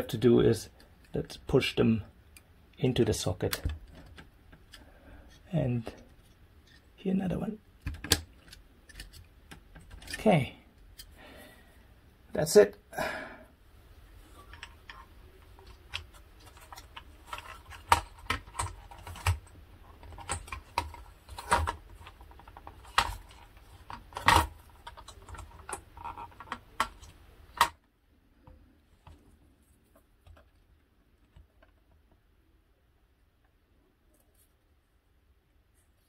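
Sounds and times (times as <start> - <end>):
clicks and knocks of handled electronics: 3.4 - 6.8, 7.8 - 11.1, 14.4 - 29.3, 29.9 - 32.2.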